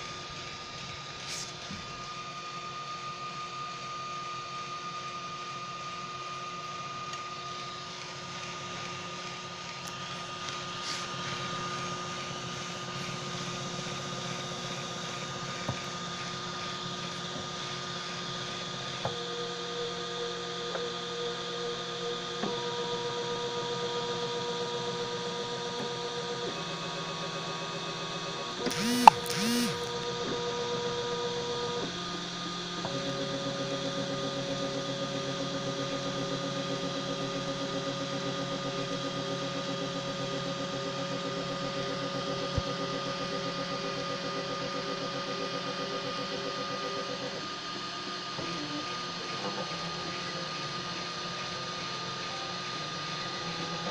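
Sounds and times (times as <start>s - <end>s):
stepper motors whining: 28.6s - 29.9s.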